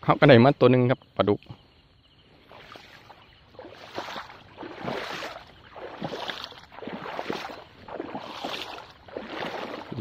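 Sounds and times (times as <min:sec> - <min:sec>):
footsteps wading through water: 0:02.4 - 0:10.0.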